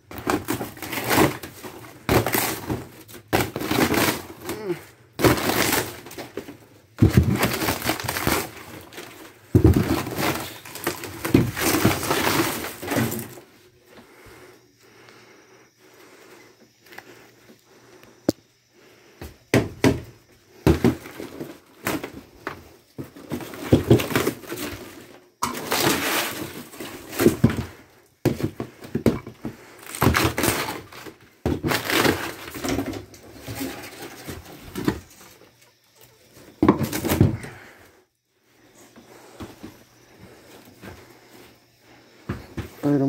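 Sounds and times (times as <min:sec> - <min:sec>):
wood cracking and breaking: 0:00.0 - 0:13.4, 0:20.6 - 0:35.2.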